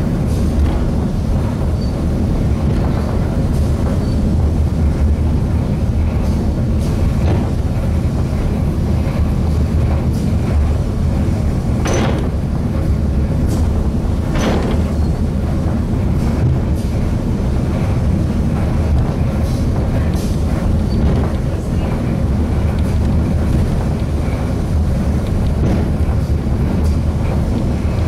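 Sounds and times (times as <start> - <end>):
funicular car rumbling on track: 0.0 - 28.0
sharp clanks: 11.8 - 12.4, 14.3 - 15.2.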